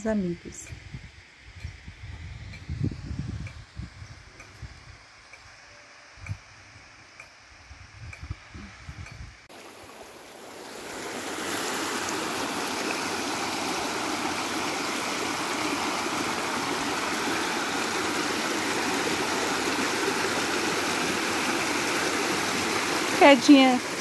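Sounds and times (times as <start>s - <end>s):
stream rushing over stones: 9.5s - 24.0s.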